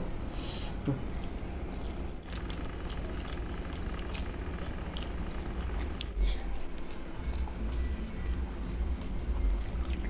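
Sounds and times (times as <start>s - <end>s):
chewing smacks: 1.2s - 7.0s.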